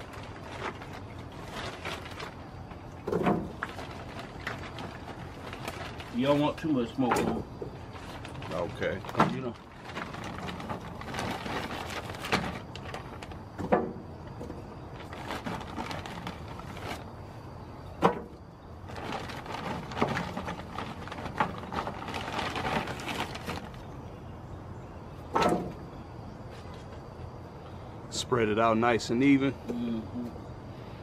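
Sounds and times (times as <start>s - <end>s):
plastic bag crinkling: 0.0s - 6.6s, 7.8s - 13.4s, 14.8s - 17.1s, 18.8s - 23.9s
wood chips clattering on metal: 0.0s - 17.0s, 18.0s - 23.8s.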